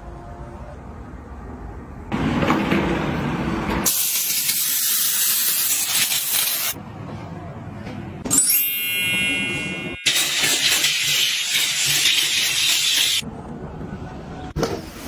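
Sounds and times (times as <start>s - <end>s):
steam cleaner hissing: 3.9s - 6.8s, 10.1s - 13.2s.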